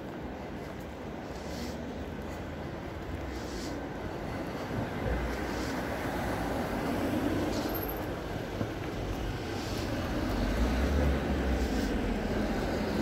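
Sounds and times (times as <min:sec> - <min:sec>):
road traffic noise: 0:00.0 - 0:13.0
vehicle passing rumble: 0:04.3 - 0:13.0.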